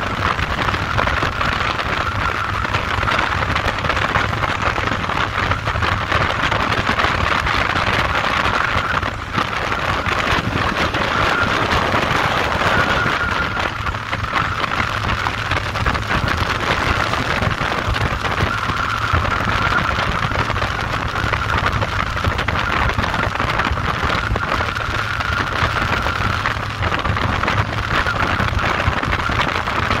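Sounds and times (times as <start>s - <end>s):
motorcycle engine rumble: 0.0s - 30.0s
wind and road noise: 0.0s - 30.0s.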